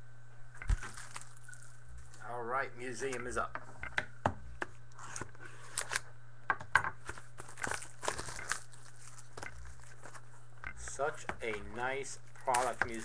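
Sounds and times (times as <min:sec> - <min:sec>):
wrapper crinkling and tearing: 0:00.7 - 0:02.2, 0:07.1 - 0:10.3, 0:12.0 - 0:13.0.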